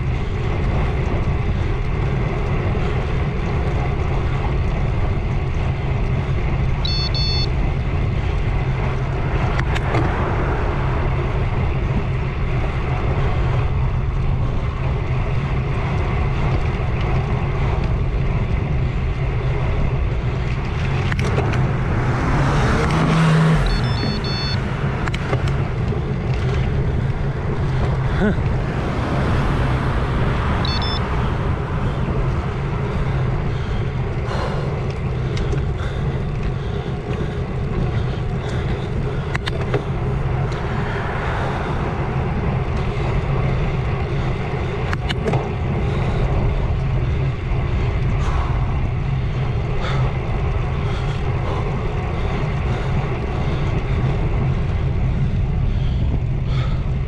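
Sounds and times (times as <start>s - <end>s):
car passing: 0.0s - 57.0s
wind and road rumble: 0.0s - 57.0s
short high beeps: 6.9s - 7.5s, 23.6s - 24.6s, 30.6s - 31.0s.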